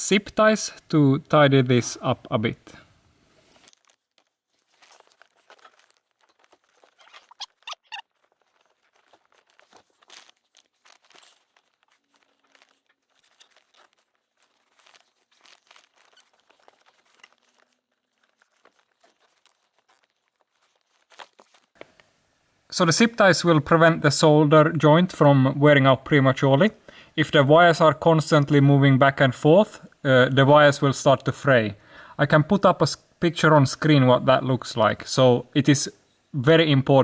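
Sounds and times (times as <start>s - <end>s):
plastic rustling: 2.8s - 22.2s.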